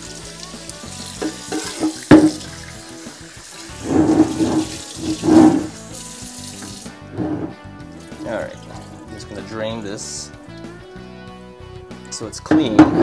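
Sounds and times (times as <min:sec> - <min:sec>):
faucet running into a sink: 0:00.0 - 0:09.5
water sloshing out of a pot: 0:01.2 - 0:02.8, 0:03.5 - 0:05.8, 0:06.5 - 0:09.4
sharp knock: 0:02.1 - 0:02.4.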